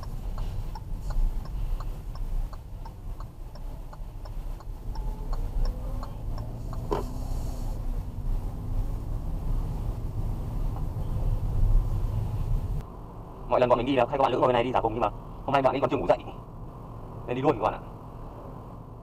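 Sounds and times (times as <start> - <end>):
turn signal ticking: 0.0 - 12.0
engine and road hum: 0.0 - 19.0.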